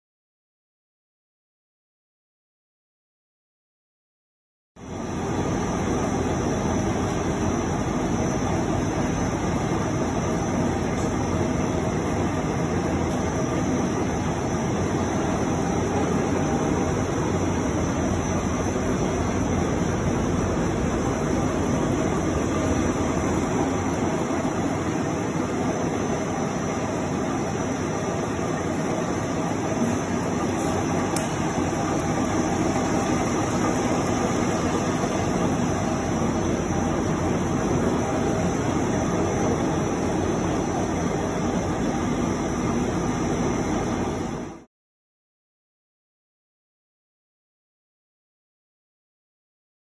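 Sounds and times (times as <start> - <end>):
faint constant hum: 4.8 - 44.7
printing press running: 4.9 - 44.6.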